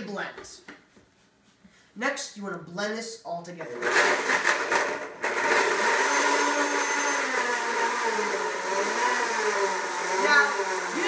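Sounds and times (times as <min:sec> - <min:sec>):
blender whirring: 0:03.6 - 0:11.0.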